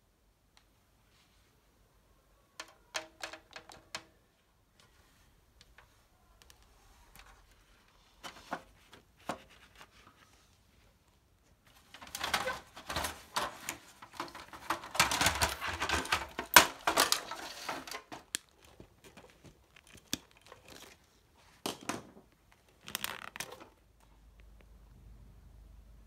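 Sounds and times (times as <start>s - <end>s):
plastic parts rustling and clattering: 2.6s - 4.1s, 5.7s - 10.3s, 11.5s - 24.0s.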